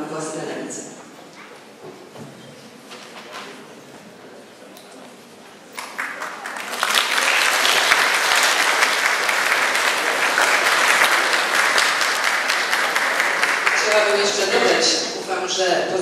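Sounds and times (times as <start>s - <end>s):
audience applauding: 5.8s - 14.8s.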